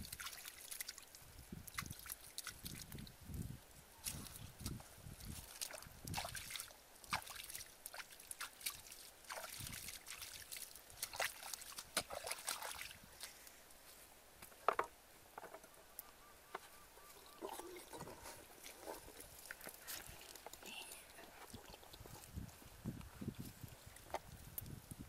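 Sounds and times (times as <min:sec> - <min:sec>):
bare feet splashing through mud: 0:00.0 - 0:03.1, 0:04.0 - 0:13.6, 0:17.4 - 0:22.4.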